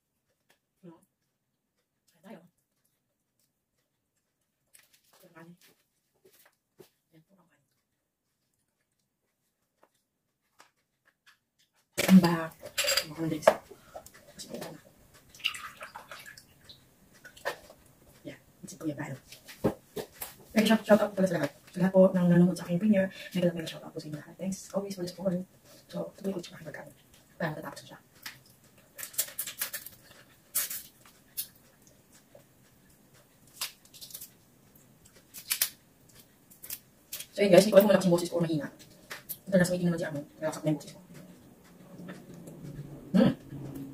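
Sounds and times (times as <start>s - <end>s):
shrimp shell crackling: 28.2s - 31.5s, 33.4s - 34.4s, 35.1s - 37.7s.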